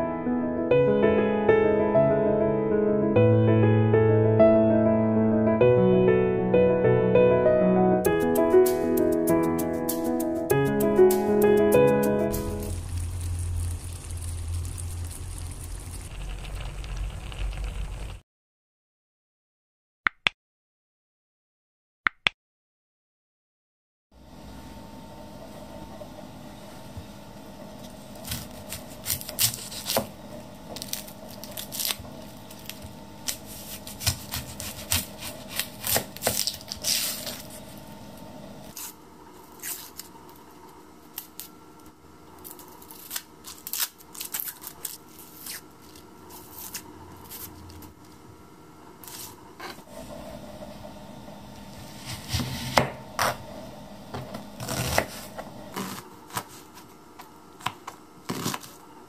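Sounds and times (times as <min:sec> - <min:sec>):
onion skin crackling and tearing: 0:12.4 - 0:18.2, 0:28.1 - 0:37.7, 0:38.7 - 0:47.8.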